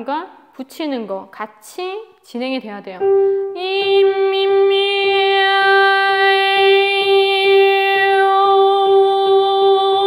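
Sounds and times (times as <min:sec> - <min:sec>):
woman singing a long held note: 0:03.0 - 0:10.0.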